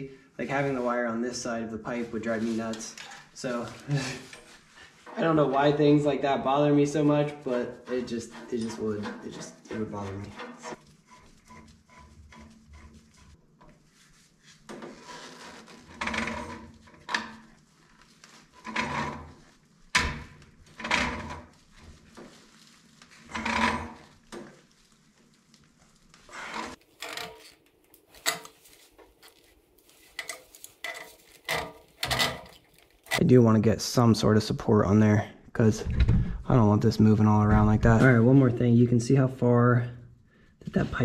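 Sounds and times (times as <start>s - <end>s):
metal tools scraping on brass fittings: 7.8s - 12.9s, 30.0s - 33.2s.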